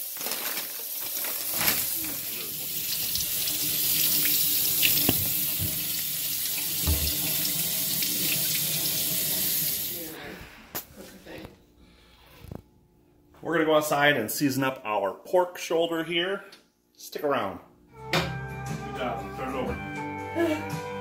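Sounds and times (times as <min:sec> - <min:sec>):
faucet water pouring onto meat: 0:00.7 - 0:10.0.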